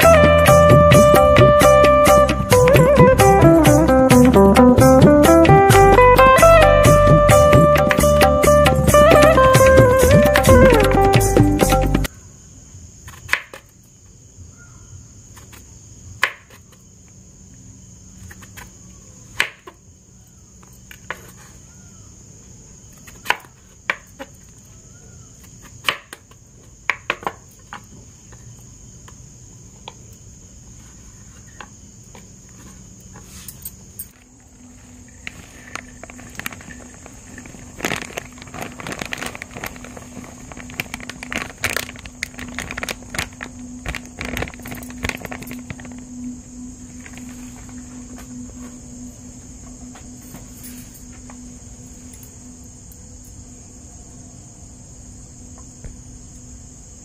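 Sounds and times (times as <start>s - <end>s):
crickets chirring: 0.0s - 57.0s
low steady hum: 33.5s - 57.0s.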